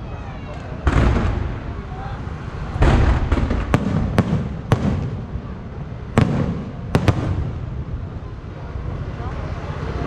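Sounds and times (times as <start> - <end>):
firework shells bursting: 2.8 - 5.3.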